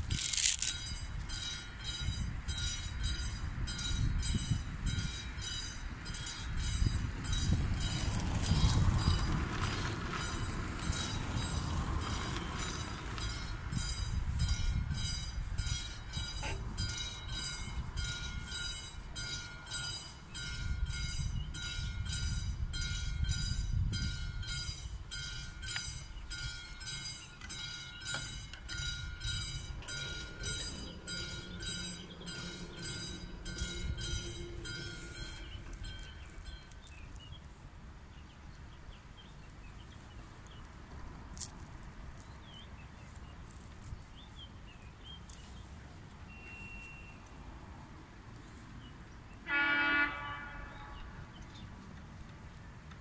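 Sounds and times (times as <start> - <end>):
level crossing warning bell: 0.2 - 37.2
car engines rumbling: 5.7 - 49.4.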